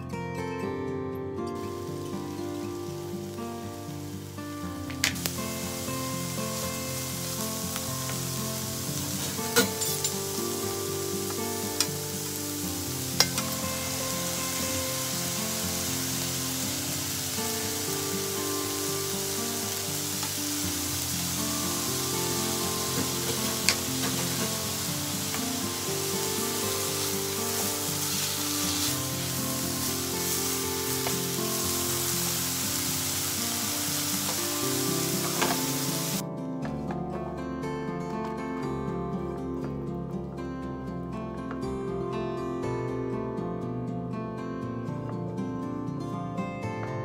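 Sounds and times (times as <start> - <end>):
carrots sizzling in frying pan: 1.6 - 36.2.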